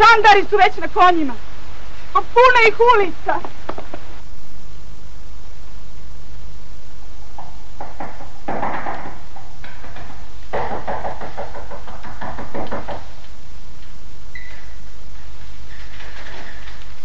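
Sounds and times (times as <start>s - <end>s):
rapid pounding knocks on door: 7.4s - 13.2s.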